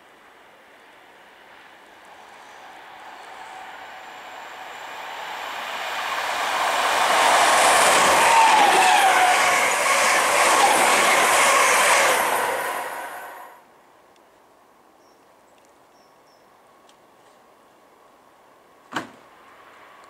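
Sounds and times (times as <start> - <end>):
train roaring past: 1.2 - 13.6
train whine dropping in pitch: 2.5 - 13.6.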